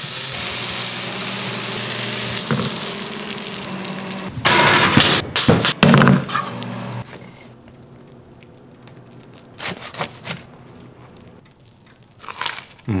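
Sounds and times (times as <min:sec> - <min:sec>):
butter sizzling in a pan: 0:00.0 - 0:04.4
crunchy bite: 0:11.8 - 0:12.9
knife crunching through toast: 0:11.8 - 0:12.9.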